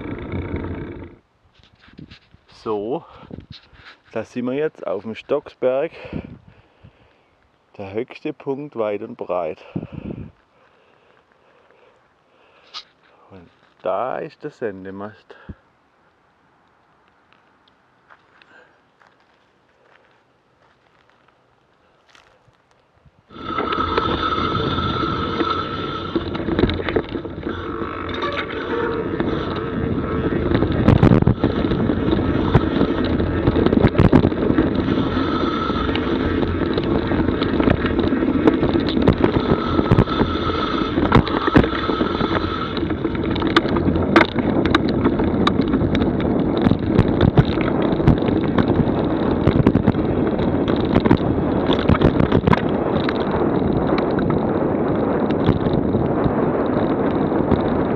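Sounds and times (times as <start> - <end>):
wind rushing over microphone: 0.0 - 1.2, 1.8 - 7.1, 9.6 - 10.4, 23.0 - 57.9
tyres rumbling on dirt: 0.0 - 3.3, 23.3 - 57.9
bike rattling over bumps: 0.0 - 6.2, 23.3 - 57.9.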